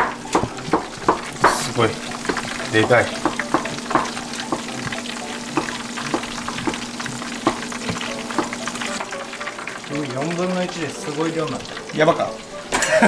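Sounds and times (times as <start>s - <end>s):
oil sizzling with pops: 0.0s - 13.0s.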